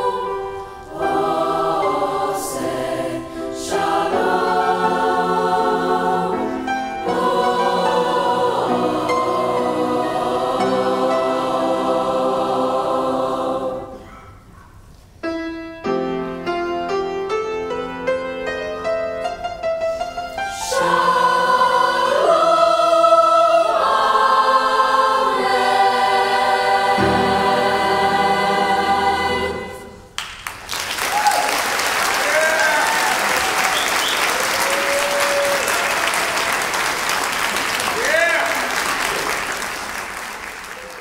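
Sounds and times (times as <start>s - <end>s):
piano accompaniment: 0.0s - 14.0s, 15.2s - 30.2s
choir singing: 0.0s - 14.1s, 20.4s - 30.2s
audience applauding: 30.2s - 41.0s
whoops and cheers: 31.0s - 36.8s.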